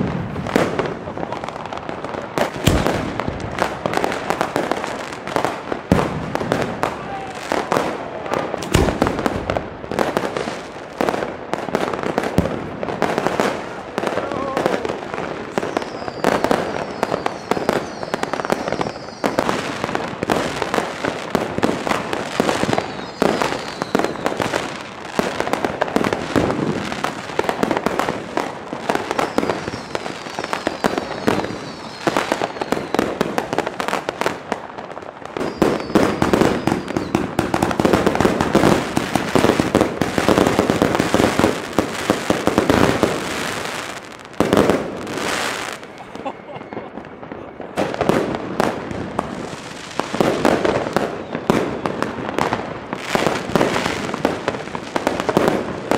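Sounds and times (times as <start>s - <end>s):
firecrackers banging and crackling: 0.0s - 55.9s
firework whistles: 15.5s - 19.8s, 22.4s - 24.8s, 28.9s - 33.4s, 35.3s - 37.8s, 42.8s - 48.1s, 49.7s - 52.1s.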